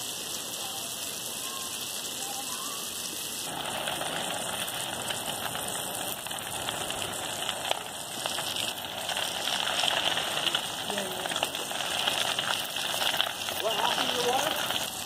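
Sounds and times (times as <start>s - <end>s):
fire crackling: 0.0s - 15.0s
fire hissing rush: 0.0s - 15.0s.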